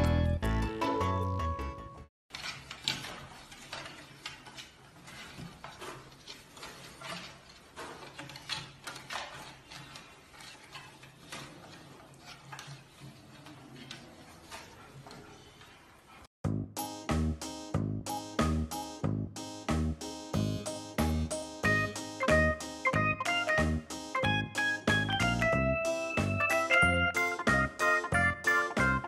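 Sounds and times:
music: 0.0 - 2.1, 16.4 - 29.0
knocks and rattles against crib bars: 2.3 - 15.5.

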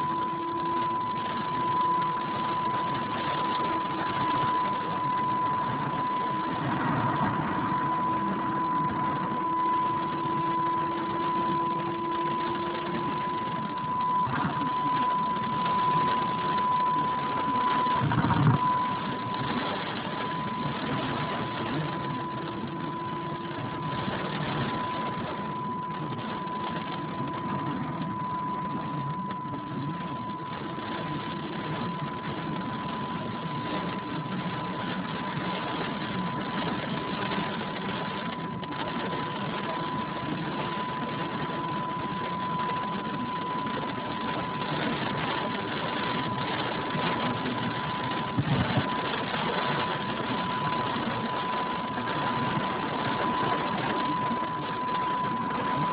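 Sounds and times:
constant high-pitched tone: 0.0 - 55.9.

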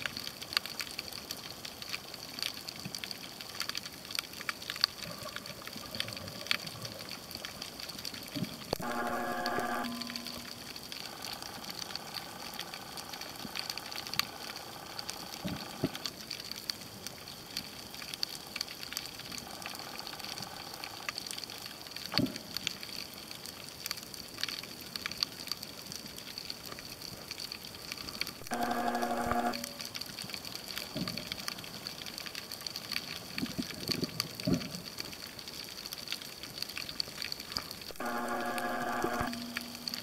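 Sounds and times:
humming tone: 8.8 - 14.3, 28.4 - 30.0, 37.9 - 40.0.

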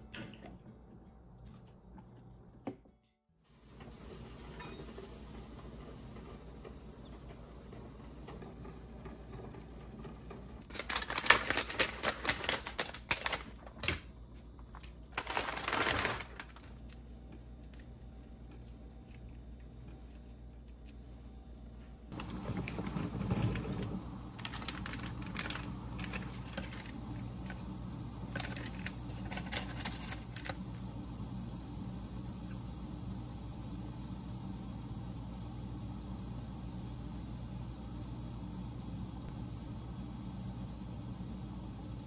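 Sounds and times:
rapid clicking and rustling: 22.2 - 27.6.

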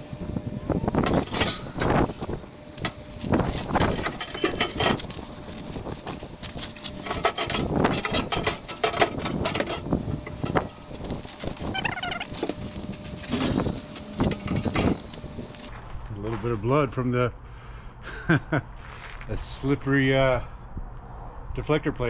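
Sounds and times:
metal parts clanking and scraping: 1.0 - 15.7.

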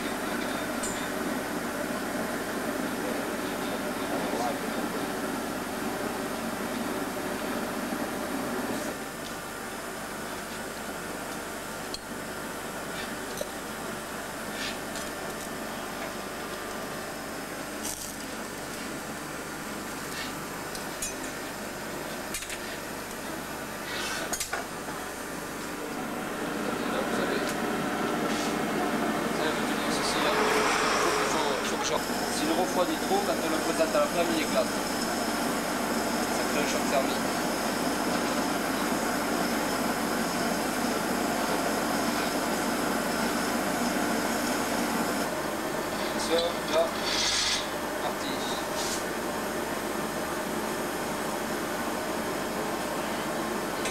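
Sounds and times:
furnace roaring: 0.0 - 53.9.

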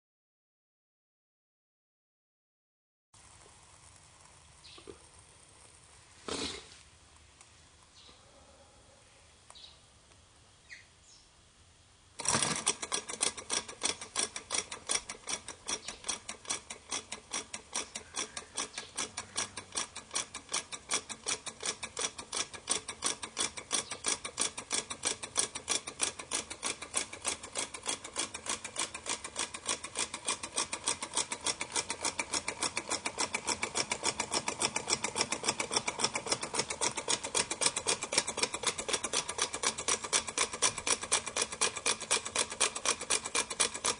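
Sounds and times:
small engine linkage clattering: 12.2 - 43.9.

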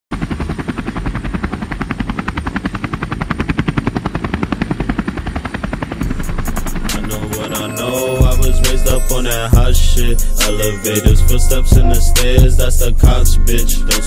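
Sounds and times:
helicopter rotor chopping: 0.1 - 14.0
music beat with hi-hat ticks: 6.0 - 14.0.

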